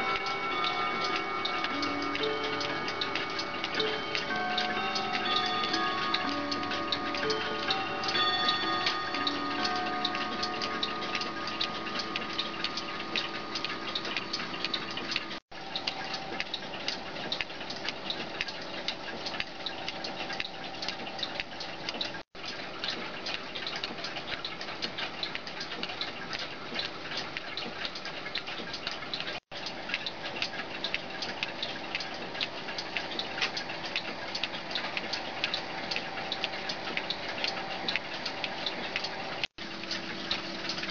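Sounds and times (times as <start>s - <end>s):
striking bell ringing: 0.0s - 13.6s
clock mechanism clicking: 0.0s - 40.9s.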